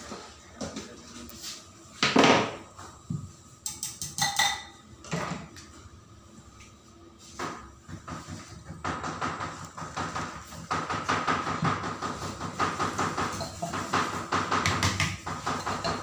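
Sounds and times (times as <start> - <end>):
glass bowl and blade clinking: 3.7 - 4.8, 13.3 - 13.8, 15.6 - 16.0.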